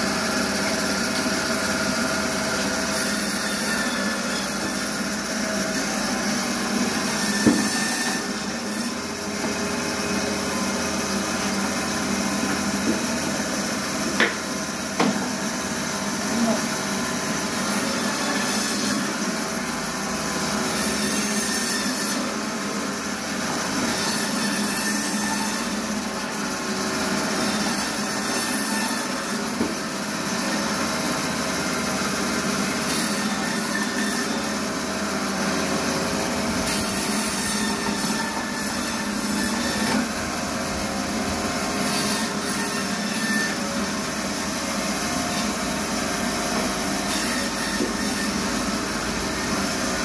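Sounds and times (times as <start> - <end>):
band saw cutting through bone: 0.0 - 15.7, 17.4 - 19.6, 20.2 - 50.0.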